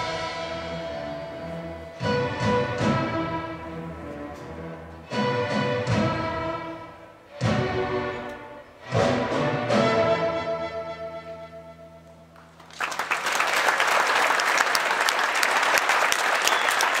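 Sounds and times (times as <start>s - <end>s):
audience applause: 12.4s - 17.0s.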